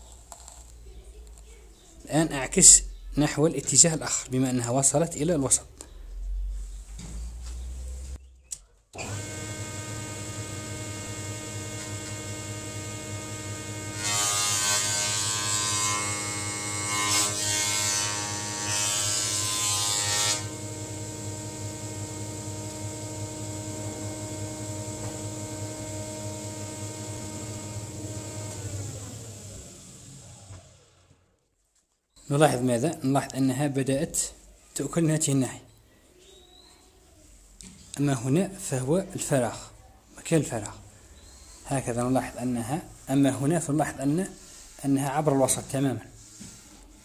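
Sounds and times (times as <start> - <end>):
cutterhead shaving wood: 9.0 - 31.0
jointer motor hum: 9.0 - 31.2.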